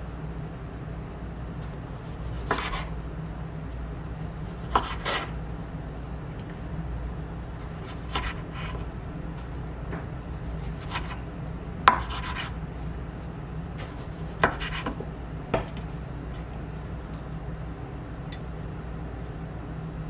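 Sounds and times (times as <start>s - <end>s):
knife slicing a tomato: 1.8s - 2.9s, 4.0s - 5.4s, 7.2s - 8.9s, 9.9s - 11.2s, 11.9s - 12.6s, 13.8s - 15.0s.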